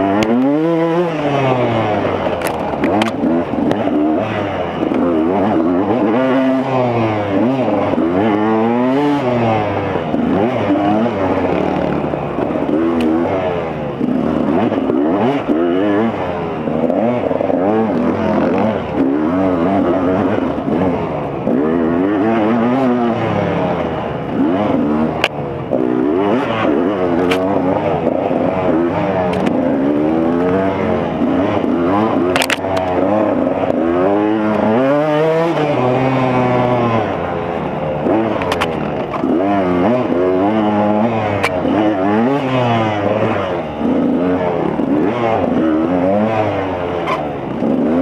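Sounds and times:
two-stroke engine revving: 0.0s - 48.0s.

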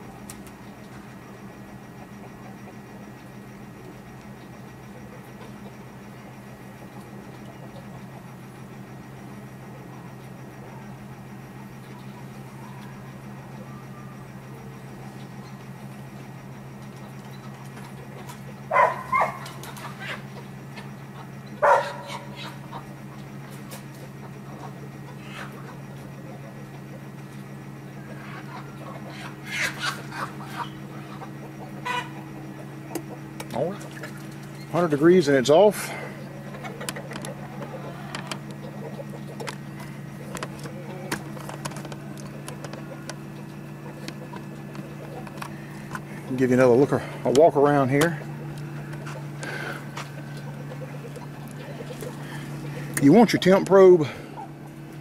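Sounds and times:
low fan hum: 0.0s - 55.0s
dog barking: 18.7s - 19.5s, 21.6s - 22.5s.

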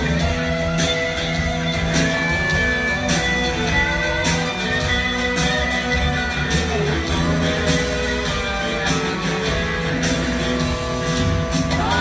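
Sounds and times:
electric guitars: 0.0s - 12.0s
live rock band playing blues-rock: 0.0s - 12.0s.

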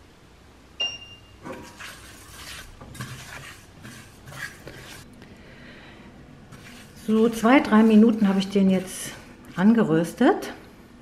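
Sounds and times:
brief high ringing tone: 0.8s - 1.4s
spatula scraping seeds in wok: 1.4s - 5.1s, 6.3s - 10.2s.

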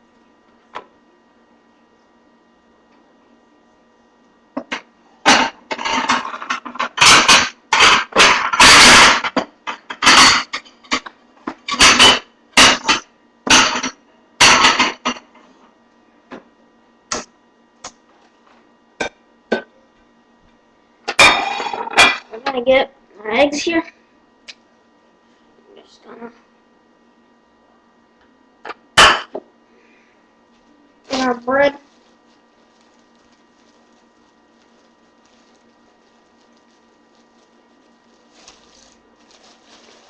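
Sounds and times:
kitchen utensils and cookware clattering: 11.7s - 15.2s.

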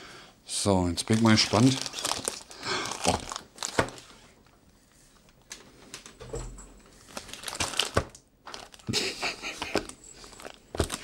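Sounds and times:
plastic wrapping crinkling: 1.0s - 4.5s, 7.0s - 11.0s.

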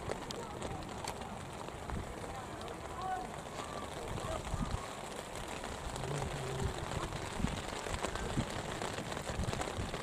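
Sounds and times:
rain on an umbrella: 0.0s - 10.0s.

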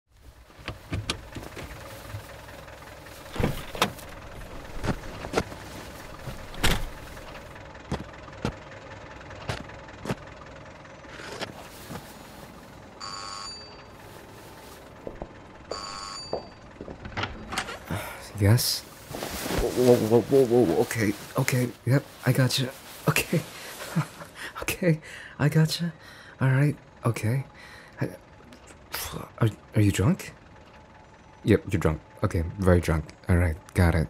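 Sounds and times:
knocks and thumps: 0.6s - 2.2s, 3.3s - 4.1s, 16.3s - 17.8s
electronic doorbell ringing: 13.0s - 14.0s, 15.7s - 16.7s.

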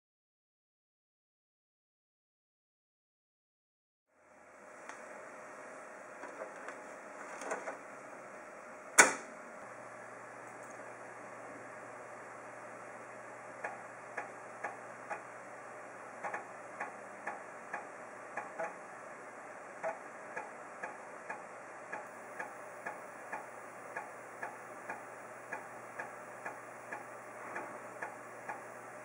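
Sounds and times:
steady drive hum: 4.2s - 29.0s
floppy drive head clicking: 19.8s - 28.8s.

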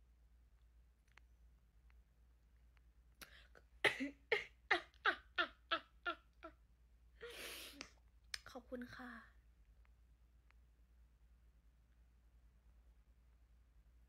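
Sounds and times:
woman laughing: 3.8s - 6.5s, 7.2s - 7.8s.

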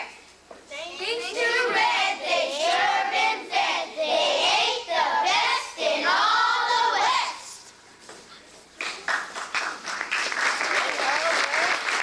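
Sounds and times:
young children singing: 0.8s - 7.6s.

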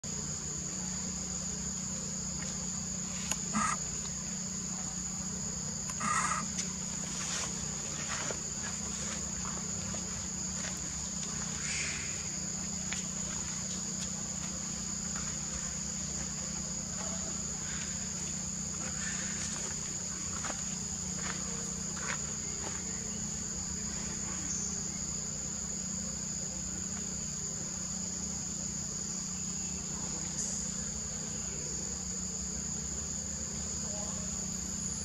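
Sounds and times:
high-pitched insect chorus: 0.0s - 35.0s
low steady hum: 0.0s - 35.0s
short calls: 3.2s - 4.0s, 5.9s - 6.6s.

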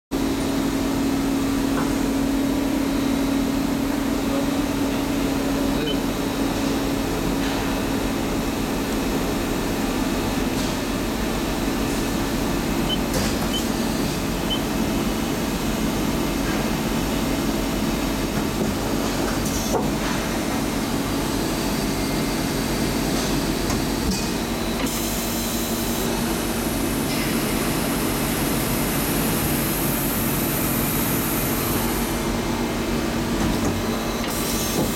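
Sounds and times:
steady machine tone: 11.2s - 16.0s.

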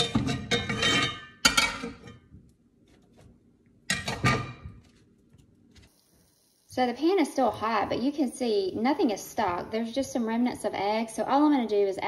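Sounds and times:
metal spatula scraping a skillet: 0.0s - 2.2s.

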